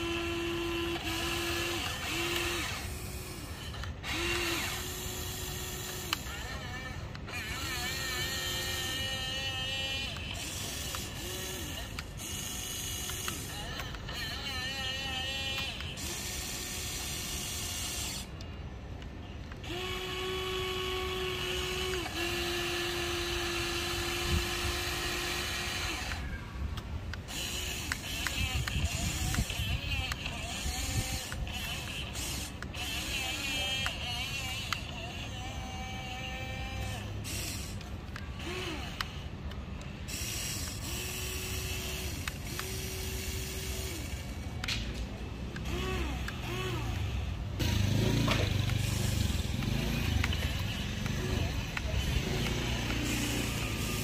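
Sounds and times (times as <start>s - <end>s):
electric motors whining: 0.0s - 54.0s
small clicks: 21.6s - 35.3s, 36.8s - 47.3s, 48.3s - 54.0s.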